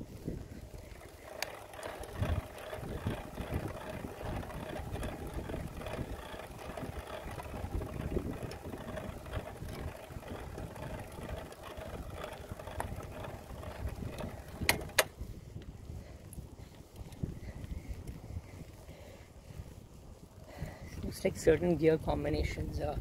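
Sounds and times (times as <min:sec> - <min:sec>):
bicycle drivetrain running: 0:00.0 - 0:23.0
wind rumble on microphone: 0:00.0 - 0:23.0
sharp clicks: 0:01.2 - 0:04.8, 0:09.6 - 0:15.2.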